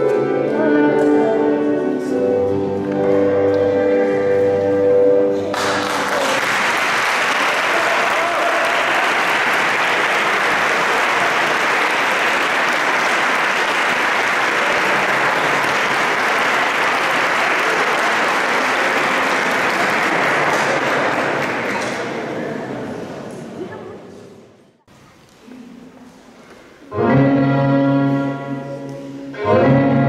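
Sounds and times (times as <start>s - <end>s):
audience applauding: 5.5s - 22.4s.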